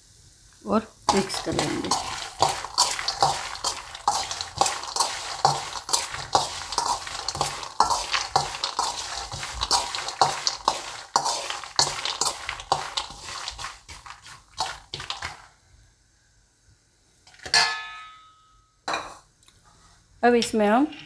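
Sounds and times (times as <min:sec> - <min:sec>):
peanuts rattling in steel bowl: 0:01.1 - 0:15.5.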